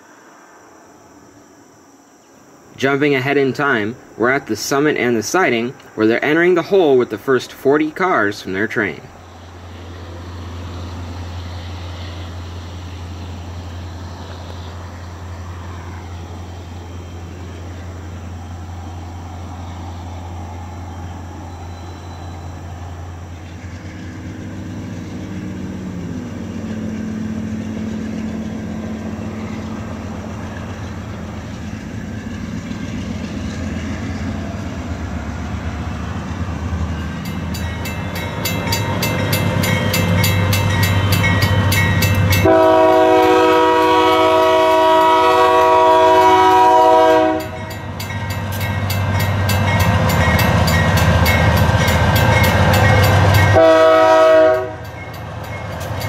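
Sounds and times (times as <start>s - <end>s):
diesel locomotive engines: 0.0s - 56.0s
locomotive air horn chord: 42.2s - 47.8s, 53.5s - 54.9s.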